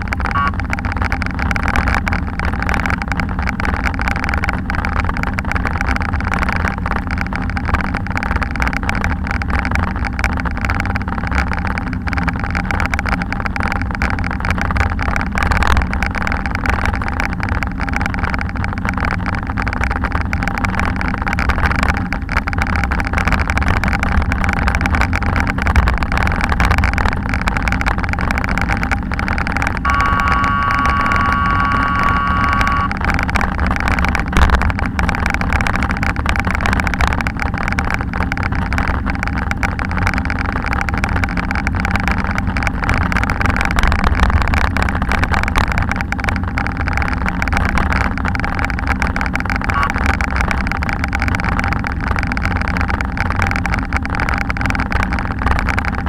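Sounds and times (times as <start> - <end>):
road traffic: 0.0 - 1.8, 28.5 - 33.8
bicycle rolling over bricks: 0.0 - 56.0
high held tone: 0.2 - 0.7, 29.8 - 33.0, 49.8 - 50.0.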